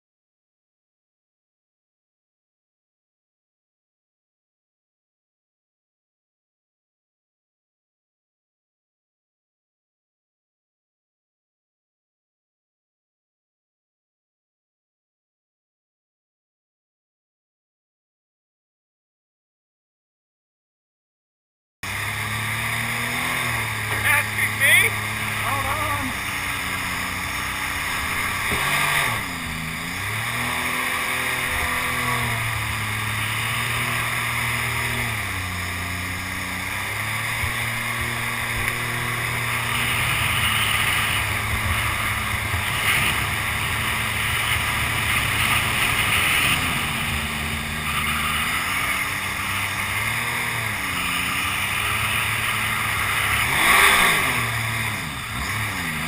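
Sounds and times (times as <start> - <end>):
boat engine revving: 21.8 - 56.0.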